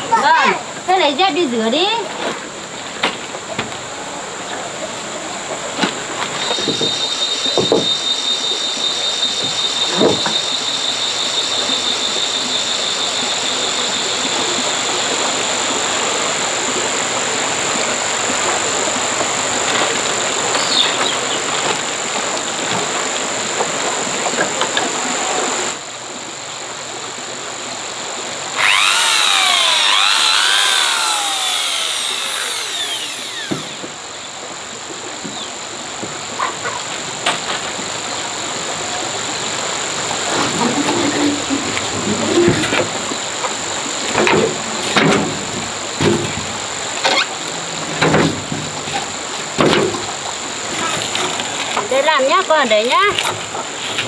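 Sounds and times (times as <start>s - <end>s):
high whine: 28.6s - 33.9s
power drill driving screws: 28.6s - 33.9s
high pulsing buzz: 28.6s - 34.0s.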